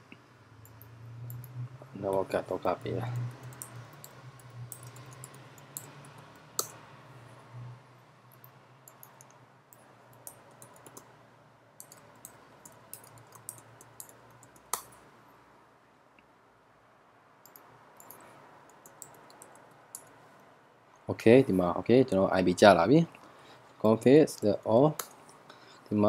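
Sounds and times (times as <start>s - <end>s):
computer keyboard keystrokes: 2.7s - 6.7s, 11.8s - 15.0s, 17.4s - 20.1s
mouse clicks: 2.8s - 6.8s.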